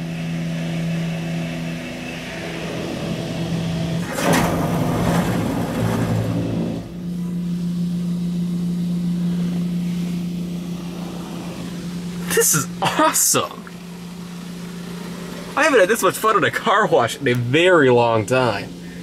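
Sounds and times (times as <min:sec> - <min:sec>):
steady machine hum: 0:00.0 - 0:19.0
car wash brush scrubbing: 0:08.8 - 0:17.0
rush of brush and water: 0:09.7 - 0:16.8.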